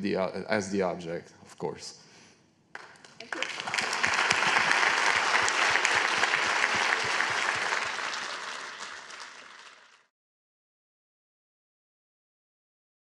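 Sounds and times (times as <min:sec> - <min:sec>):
audience applauding: 0:02.8 - 0:10.1.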